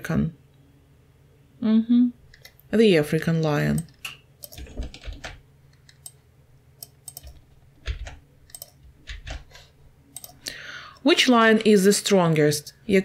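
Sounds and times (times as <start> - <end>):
computer keyboard clicks: 3.7 - 6.2, 6.8 - 9.5, 10.1 - 10.4.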